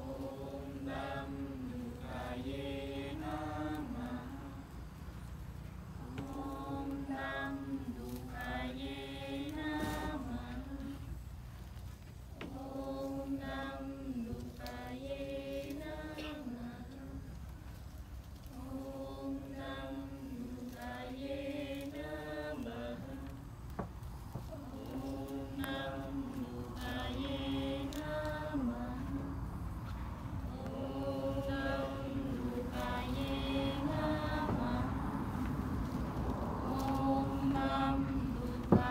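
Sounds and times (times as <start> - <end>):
person chanting: 0.0 - 4.7, 6.0 - 11.1, 24.4 - 29.5, 30.4 - 35.8, 36.4 - 38.9
steady low hum: 0.0 - 38.9.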